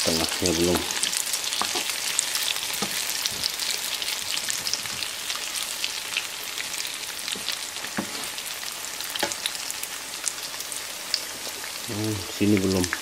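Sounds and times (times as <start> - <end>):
pancakes sizzling in oil: 0.0 - 13.0
wooden spatula strokes in pan: 8.0 - 8.4.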